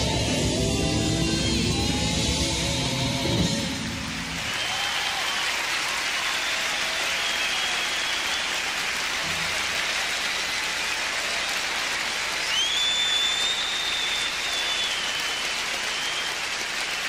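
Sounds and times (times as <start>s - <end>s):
audience applauding: 3.8s - 17.0s.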